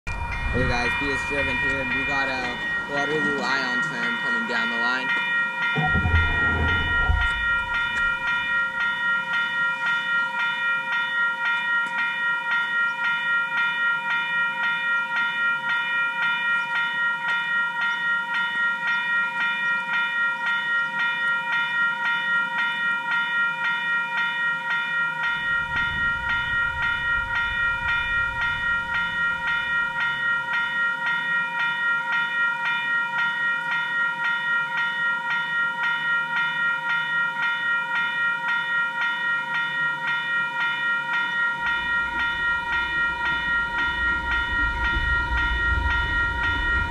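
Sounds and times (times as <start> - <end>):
level-crossing warning bell ringing: 0.0 - 46.9
low rumble: 5.8 - 8.7, 25.5 - 30.0, 41.7 - 46.9.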